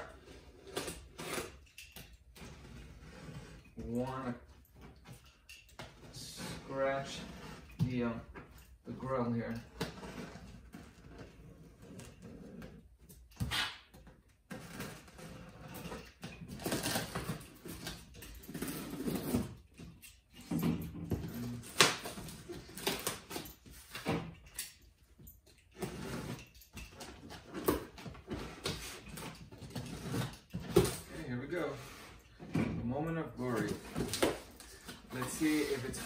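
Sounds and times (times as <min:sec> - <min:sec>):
knife slicing tape and cardboard: 0:13.4 - 0:13.9.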